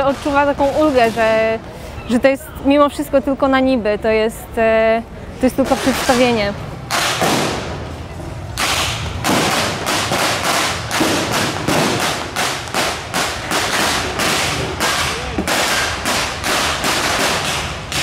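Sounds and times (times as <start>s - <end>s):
blank gunshots with echo: 6.8s - 8.0s, 8.6s - 18.0s.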